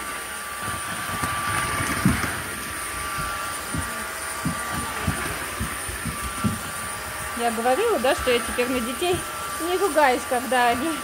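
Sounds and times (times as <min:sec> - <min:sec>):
wet-dry vacuum cleaner motor whine: 0:00.0 - 0:11.0
vacuum head knocking on floor: 0:01.1 - 0:06.9.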